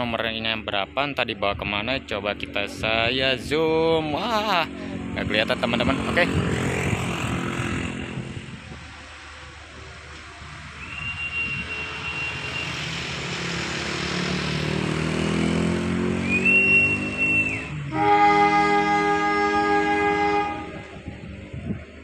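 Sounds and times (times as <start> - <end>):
diesel engine drone: 0.0 - 22.0
locomotive air horn: 10.8 - 12.8, 16.4 - 21.0
shrill whistle blasts: 10.8 - 12.9, 16.2 - 17.8.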